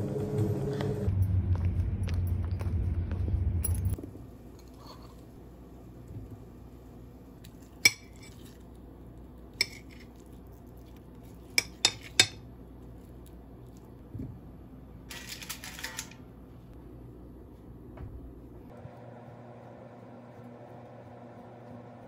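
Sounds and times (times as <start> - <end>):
dishes and cutlery clinking: 11.5 - 12.4.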